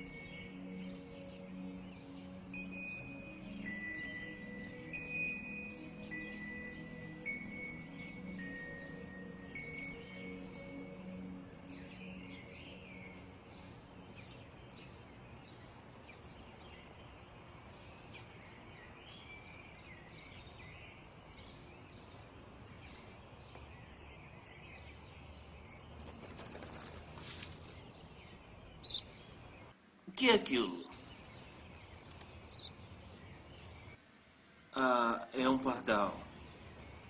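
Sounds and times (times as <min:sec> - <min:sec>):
small birds chirping: 0:00.0 - 0:37.0
faint steady hiss: 0:27.1 - 0:37.0.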